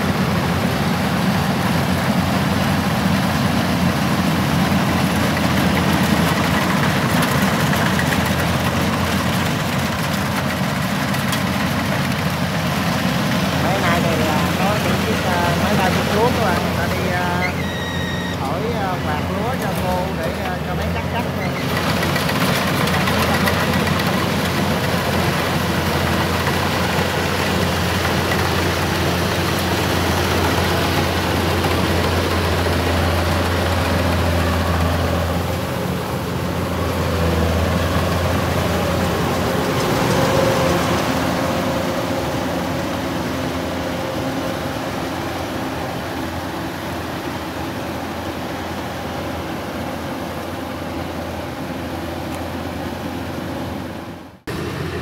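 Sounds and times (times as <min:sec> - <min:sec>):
combine harvester engine running: 0:00.0 - 0:55.0.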